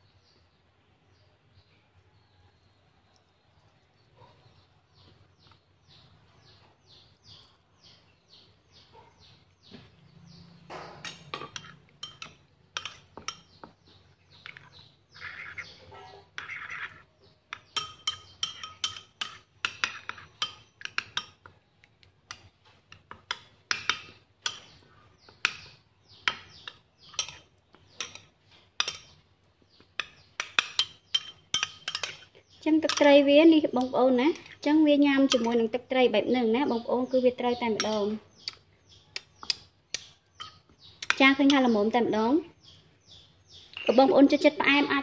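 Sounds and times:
spoon stirring thick sauce: 0:09.5 - 0:36.0, 0:36.6 - 0:41.8
spoon clinking against bowl: 0:11.0 - 0:13.8, 0:16.3 - 0:21.5, 0:22.3 - 0:24.8, 0:25.4 - 0:29.2, 0:30.0 - 0:32.3, 0:32.9 - 0:33.1, 0:35.3 - 0:35.6, 0:39.2 - 0:41.6.

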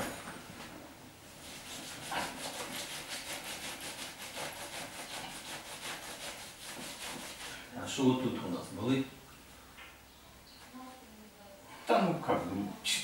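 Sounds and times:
hands rubbing over fabric: 0:01.4 - 0:07.6.

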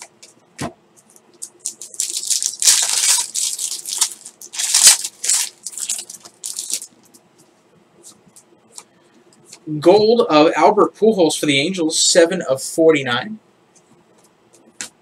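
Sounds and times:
foil wrapper tearing and crinkling: 0:01.4 - 0:07.0.

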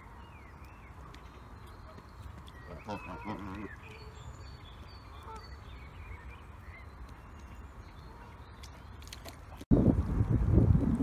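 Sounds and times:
bird calls: 0:00.0 - 0:09.5
wind rumble on microphone: 0:09.5 - 0:11.0.

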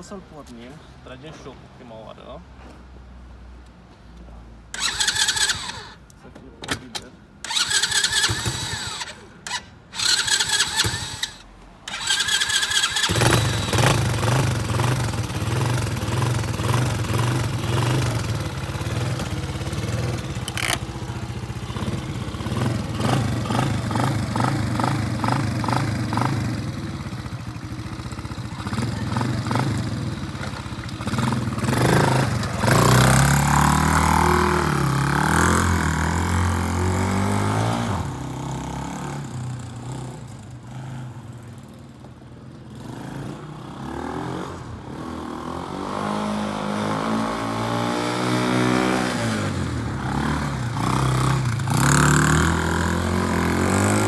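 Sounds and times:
engine starter cranking: 0:04.8 - 0:06.0, 0:06.7 - 0:13.7, 0:20.3 - 0:20.9
quad engine running and revving: 0:07.5 - 0:41.0, 0:42.7 - 0:54.0.

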